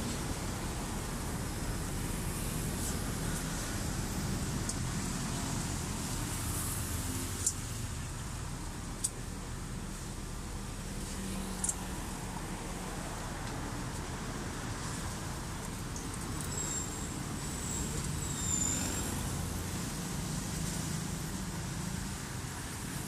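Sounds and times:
road traffic hum: 0.0s - 23.0s
high squeal: 16.4s - 19.3s.

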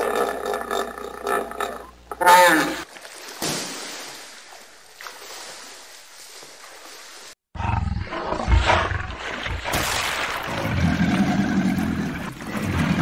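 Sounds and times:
crocodile rumbling growl: 0.0s - 2.8s, 7.6s - 9.6s, 10.4s - 13.0s.

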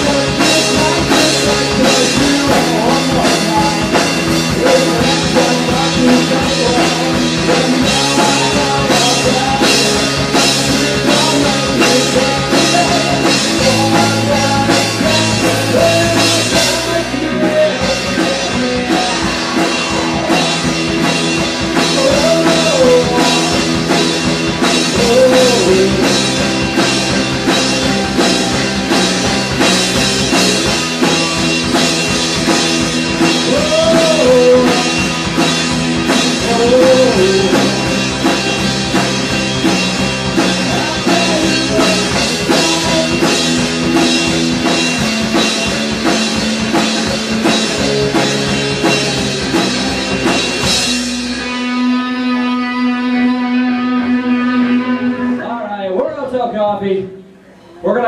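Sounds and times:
man singing: 0.0s - 28.6s, 33.1s - 39.2s, 40.2s - 44.0s
drum kit beat: 0.0s - 55.4s
electric guitars: 0.0s - 56.0s
live rock band playing: 0.0s - 57.9s
bass line: 0.0s - 58.0s.

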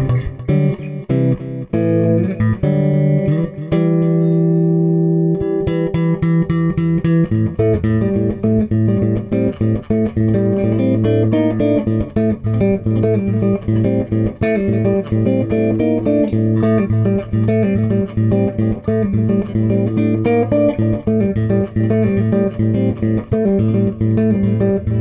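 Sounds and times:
picked guitar notes: 0.0s - 25.0s
low bass line: 6.4s - 25.0s.

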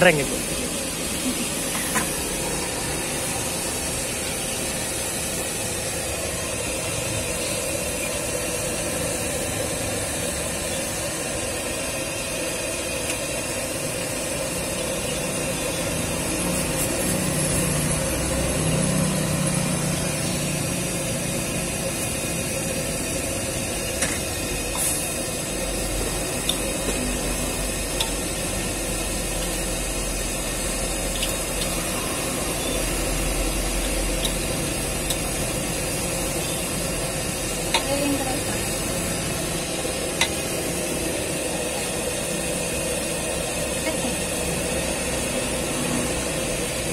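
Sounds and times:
gas burner running: 0.0s - 46.9s.

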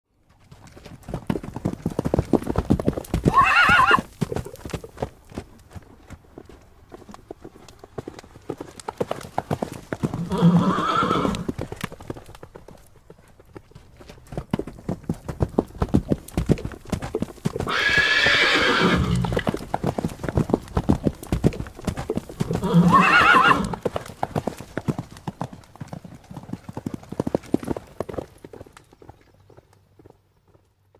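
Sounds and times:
horses galloping: 0.1s - 30.9s
horse whinnying: 3.2s - 4.1s, 10.2s - 11.5s, 17.6s - 19.4s, 22.5s - 23.8s.

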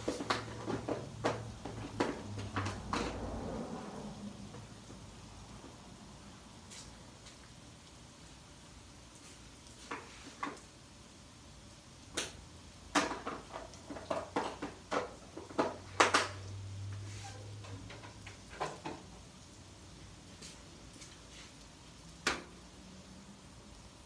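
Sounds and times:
items knocking and clattering: 0.0s - 3.6s, 12.9s - 16.6s, 17.6s - 19.2s.

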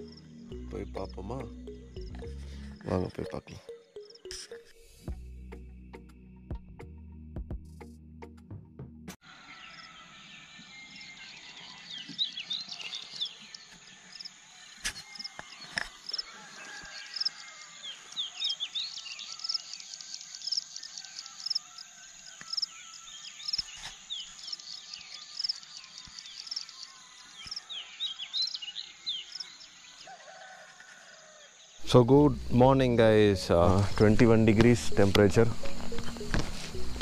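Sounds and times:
small birds chirping and twittering: 9.3s - 37.0s
high insect drone: 18.8s - 27.6s.

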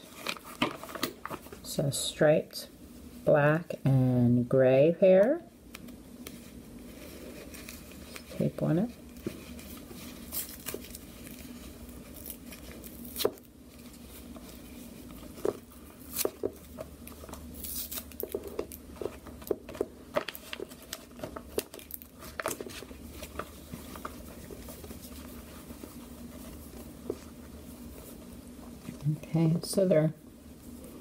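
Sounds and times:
plastic bag crinkling: 6.9s - 27.1s
adhesive tape peeling: 17.0s - 18.8s.

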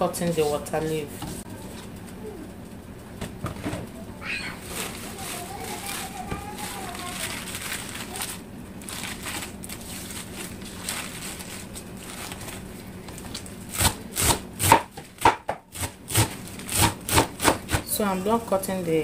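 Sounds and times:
leaves rustling: 4.2s - 13.7s
knife chopping on cutting board: 13.8s - 17.9s.

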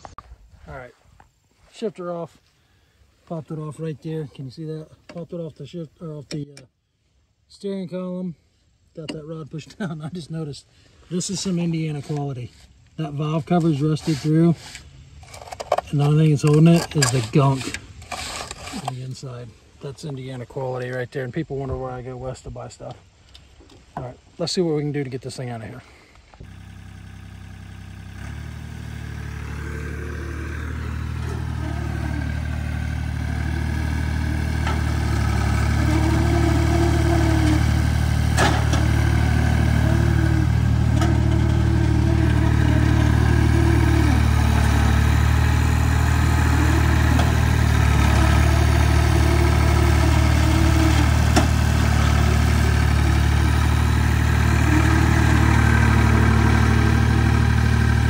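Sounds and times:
vehicle engine running: 26.4s - 58.0s.

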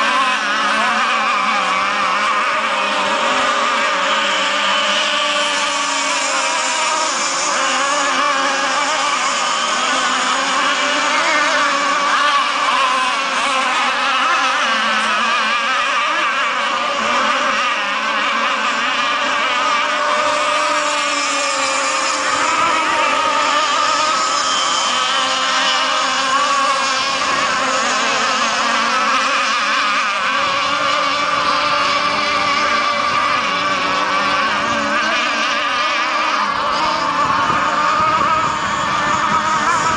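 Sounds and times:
model boat engines buzzing: 0.0s - 39.9s.

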